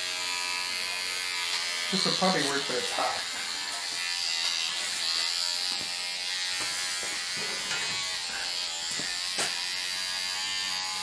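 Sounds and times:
electric hair clippers buzzing: 0:00.0 - 0:11.0.

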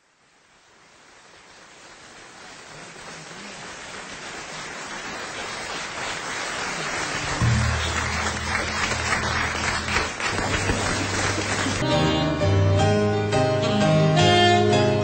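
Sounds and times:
audience applauding: 0:01.6 - 0:12.0.

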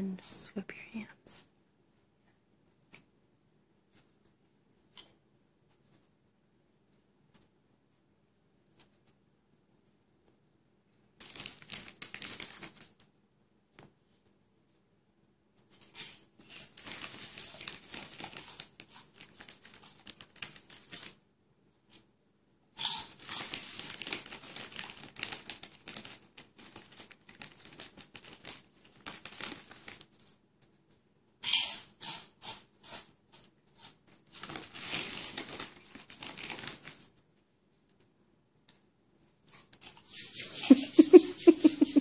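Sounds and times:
chip bag rustling: 0:11.2 - 0:12.9, 0:16.5 - 0:21.2, 0:22.8 - 0:30.1, 0:34.3 - 0:37.1, 0:40.0 - 0:42.0.

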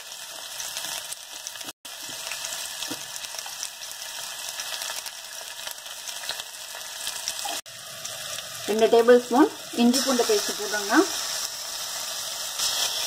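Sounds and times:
onion sizzling in hot oil: 0:00.0 - 0:13.0.

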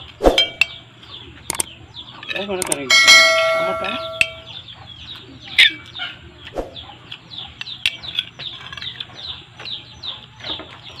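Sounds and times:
small birds chirping: 0:00.0 - 0:11.0
sharp click: 0:01.5 - 0:01.7, 0:02.6 - 0:02.8.

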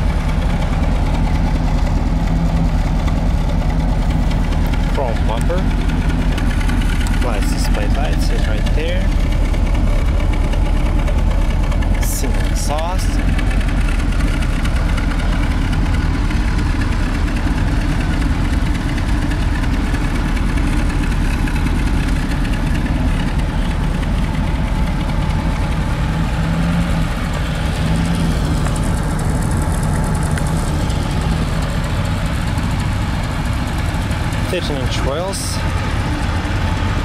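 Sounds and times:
car engine idling: 0:00.0 - 0:37.0.

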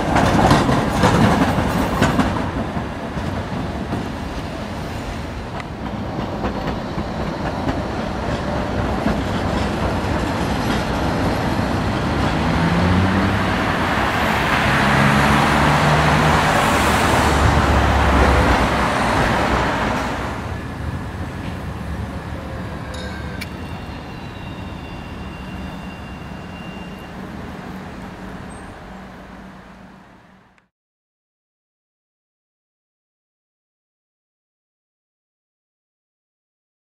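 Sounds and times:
electric tram passing: 0:00.0 - 0:30.6.

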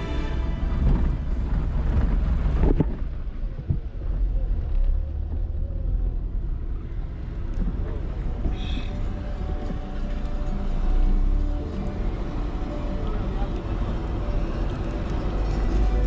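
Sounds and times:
road and engine rumble: 0:00.0 - 0:16.0
wind buffeting microphone: 0:00.5 - 0:04.7.

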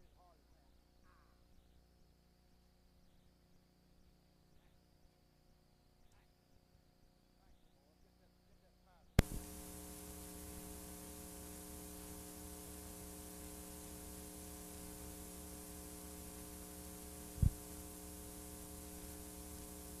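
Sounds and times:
tape hiss: 0:00.0 - 0:20.0
electrical hum: 0:09.2 - 0:20.0.

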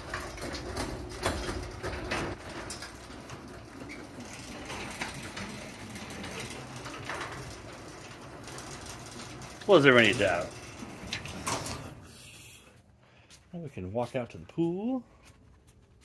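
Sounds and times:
garage door rattling on tracks: 0:00.0 - 0:12.1
garage door opener motor droning: 0:00.0 - 0:12.5.

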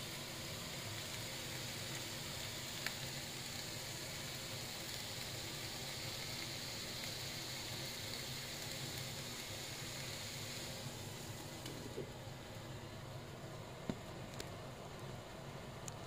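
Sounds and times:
mussels sizzling in a pan: 0:00.0 - 0:12.5.

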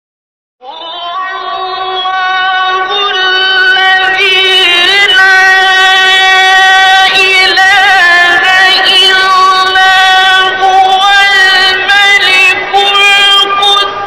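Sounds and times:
man reciting melodically: 0:01.0 - 0:14.0.

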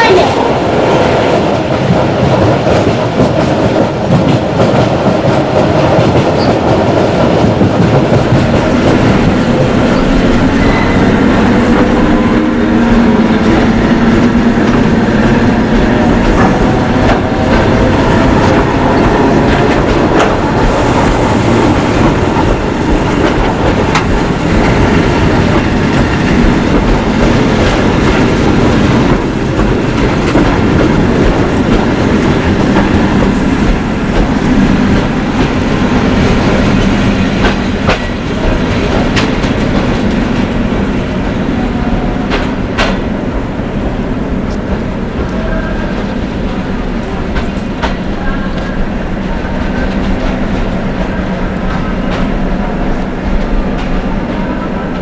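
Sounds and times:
train rumbling on rails: 0:00.0 - 0:55.0
high squeal: 0:09.9 - 0:11.9.

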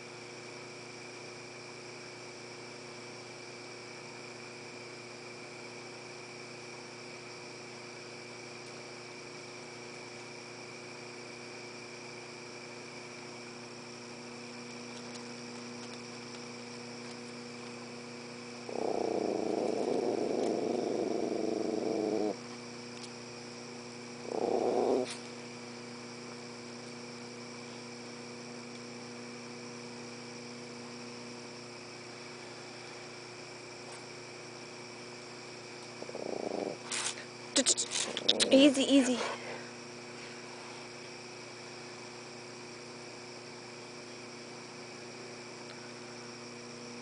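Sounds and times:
insect chorus: 0:00.0 - 0:47.0
dog growling: 0:18.6 - 0:22.4, 0:24.2 - 0:25.3, 0:36.0 - 0:39.5.

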